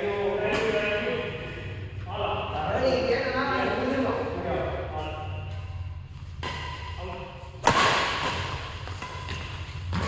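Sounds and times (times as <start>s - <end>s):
badminton racket hitting shuttlecock: 5.6s - 10.0s.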